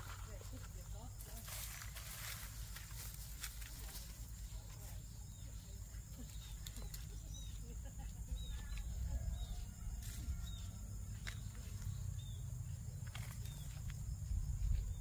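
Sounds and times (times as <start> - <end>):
bird chirping: 4.4 - 15.0.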